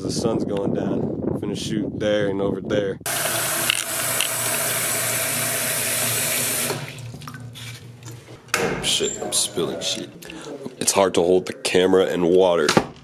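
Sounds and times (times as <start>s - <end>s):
tap water filling plastic cup: 3.1s - 7.5s.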